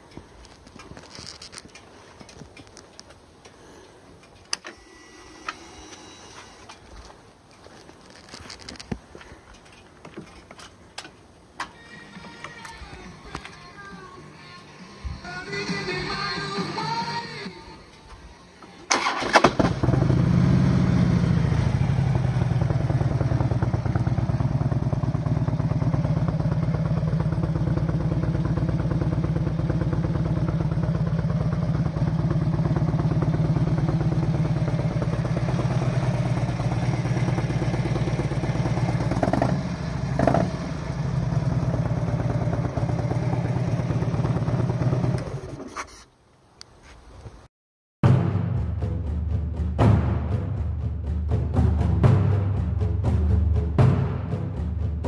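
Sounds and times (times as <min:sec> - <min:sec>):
motorcycle engine idling: 0:19.1 - 0:45.6.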